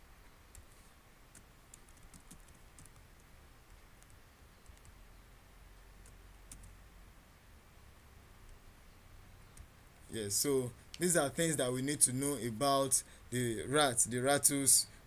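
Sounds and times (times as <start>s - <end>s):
low steady hum: 0.0s - 15.0s
typing on computer keyboard: 1.3s - 5.0s, 6.0s - 6.7s.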